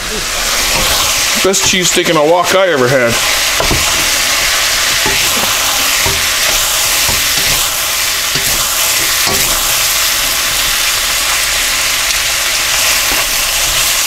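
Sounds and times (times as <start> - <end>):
food sizzling in a wok: 0.0 - 14.0
wooden spatula scraping: 0.4 - 10.6.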